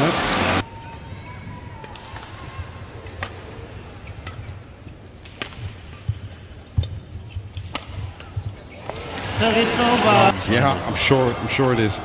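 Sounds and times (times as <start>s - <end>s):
low arena hum: 0.0s - 12.0s
rackets striking shuttlecock: 3.0s - 9.0s.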